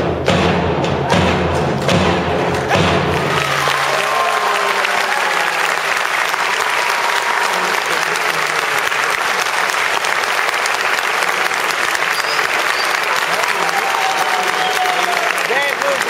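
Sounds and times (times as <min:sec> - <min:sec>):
music: 0:00.0 - 0:03.8
audience applauding: 0:02.4 - 0:16.0.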